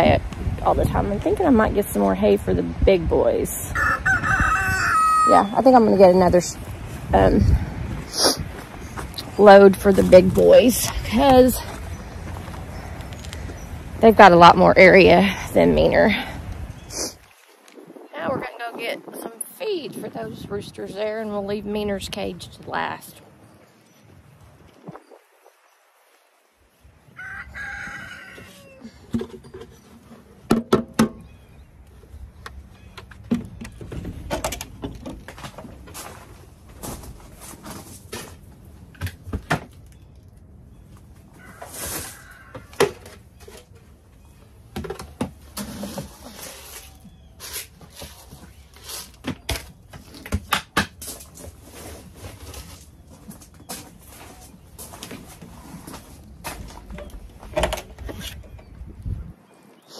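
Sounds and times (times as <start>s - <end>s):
rooster crowing: 3.7s - 5.4s, 27.2s - 29.0s.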